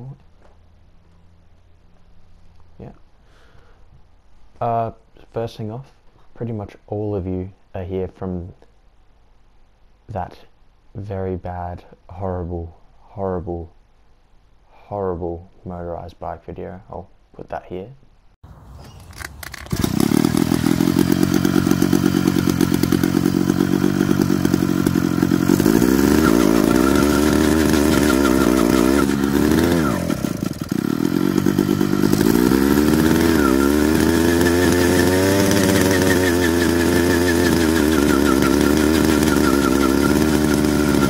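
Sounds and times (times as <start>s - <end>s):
two-stroke engine revving: 19.0s - 41.0s.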